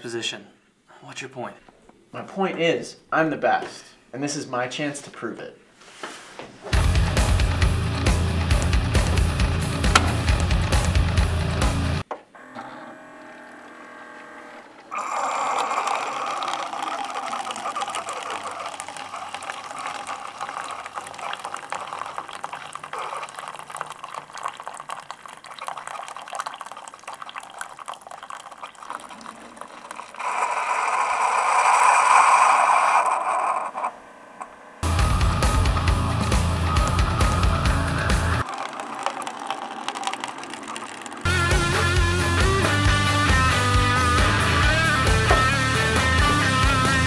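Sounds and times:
coffee maker humming: 6.8 - 47.0
coffee streaming into cup: 14.5 - 33.9, 38.4 - 42.1.

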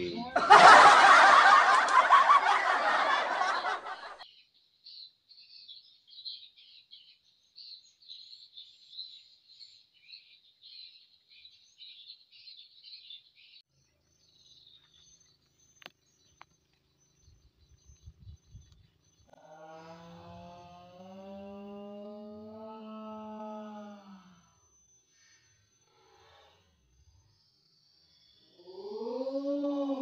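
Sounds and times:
faint high-pitched chirping: 4.2 - 19.4, 21.9 - 30.0.

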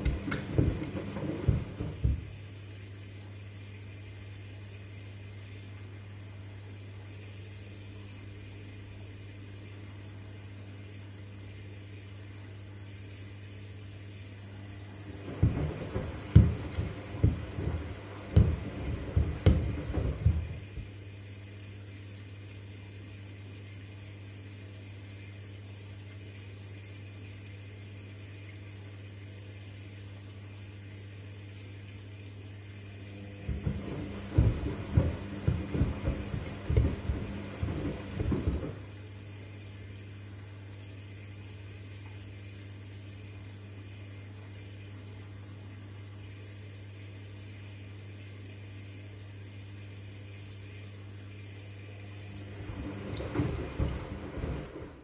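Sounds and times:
shoes knocking against drum: 0.0 - 2.4, 15.3 - 20.9, 33.4 - 38.8
water sloshing: 0.0 - 2.4, 14.8 - 21.0, 33.1 - 38.9
washing machine low hum: 0.0 - 55.0.

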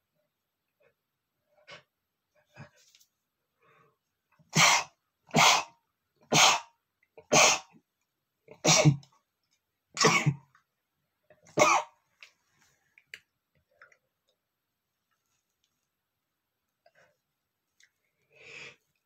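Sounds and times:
man sneezing: 4.5 - 6.7.

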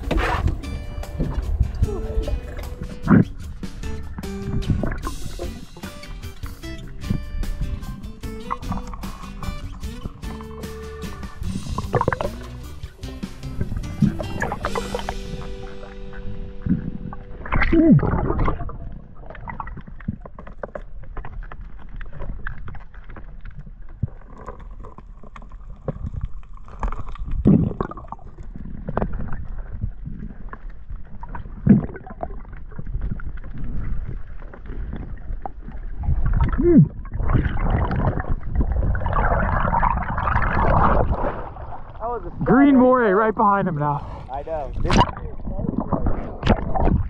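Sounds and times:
bubbling: 0.0 - 42.6, 43.7 - 47.0
underwater rumble: 0.0 - 47.0.

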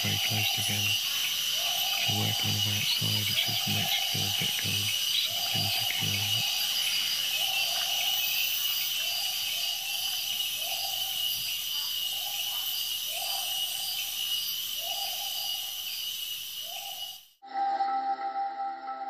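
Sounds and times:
low hooting call: 0.0 - 6.6
insects trilling and buzzing: 0.0 - 17.4.

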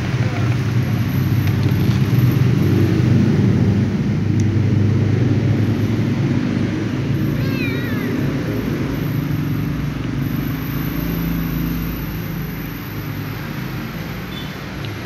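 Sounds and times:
kitten meowing: 7.4 - 8.2.

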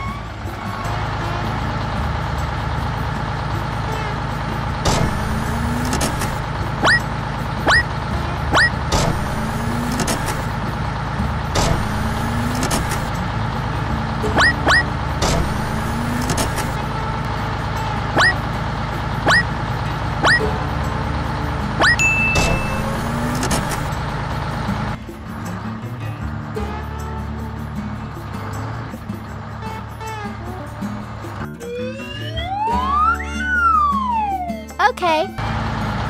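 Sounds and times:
cartoon engine running: 4.9 - 10.6, 11.6 - 13.1, 14.3 - 16.9, 18.1 - 18.4, 19.2 - 19.6, 20.2 - 20.6, 21.8 - 24.0, 31.4 - 35.4
rising squeaky chirps: 6.8 - 7.9, 8.5 - 8.8, 14.3 - 14.9, 18.2 - 18.4, 19.2 - 19.5, 20.2 - 20.5, 21.8 - 23.4.

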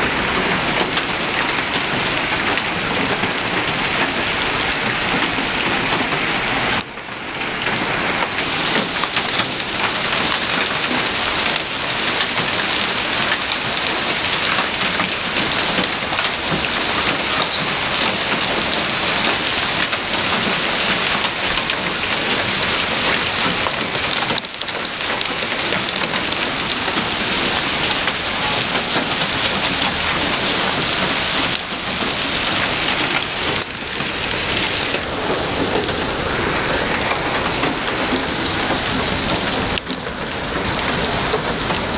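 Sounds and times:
hail pelting cars and pavement: 0.0 - 41.9
rain: 0.0 - 41.9.

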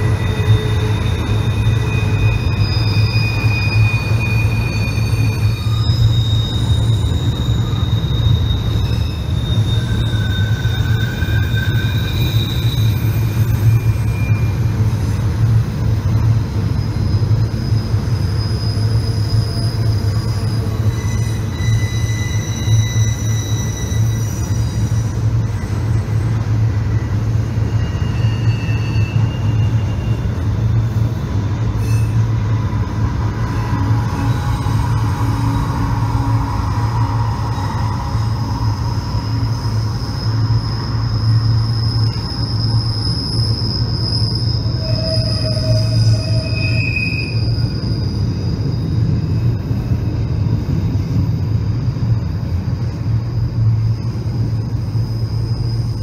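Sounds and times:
freight train rumbling: 0.0 - 56.0
wheel flanges squealing: 0.0 - 56.0.

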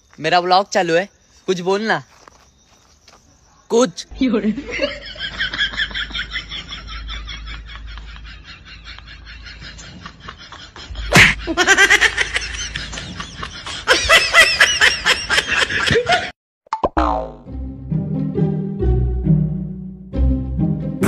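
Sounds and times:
rhythmic laughter: 4.5 - 16.3.

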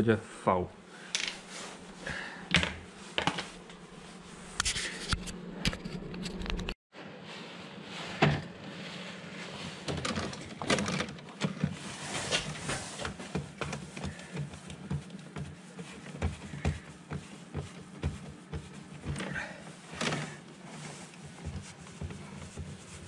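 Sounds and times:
clicks and knocks handling wires: 9.8 - 15.5.

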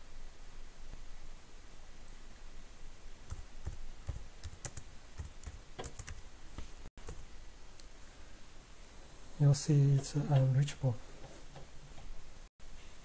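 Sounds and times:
computer keyboard typing: 3.3 - 6.2, 7.0 - 7.2.

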